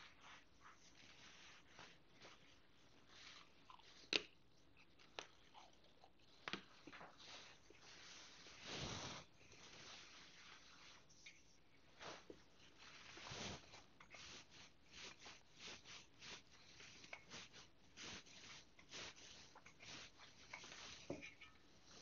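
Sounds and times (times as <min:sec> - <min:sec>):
soft rustle: 0:00.0 - 0:22.0.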